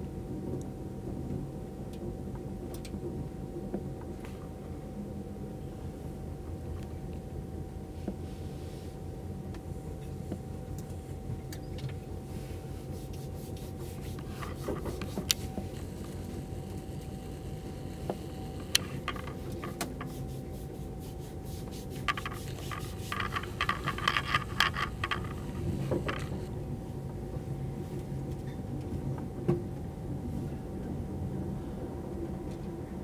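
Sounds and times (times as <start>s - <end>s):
faint constant whine: 0.0s - 33.0s
scraping rattles: 14.2s - 20.2s, 21.9s - 26.5s.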